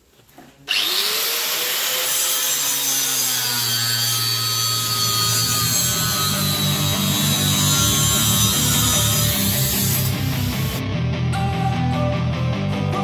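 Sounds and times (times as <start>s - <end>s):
angle grinder whining: 0.7s - 10.8s
grinder cutting metal: 0.7s - 10.8s.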